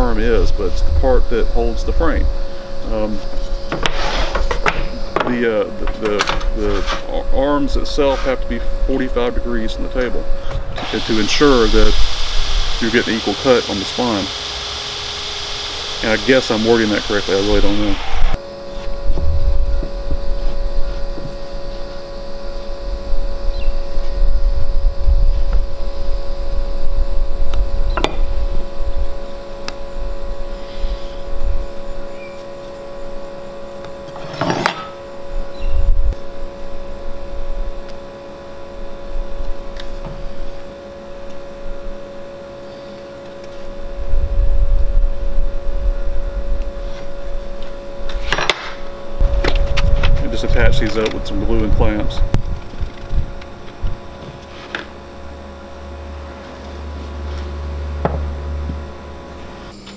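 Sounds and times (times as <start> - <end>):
steady hum: 0.0 - 59.9
wind buffeting microphone: 49.2 - 54.1.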